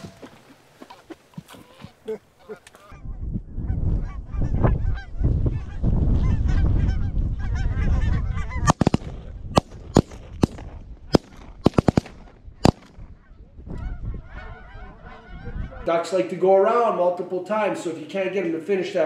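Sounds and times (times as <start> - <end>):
geese honking: 0.0 - 9.0, 12.3 - 19.0
wind noise on microphone: 2.8 - 15.9
sharp cracks: 8.7 - 13.1.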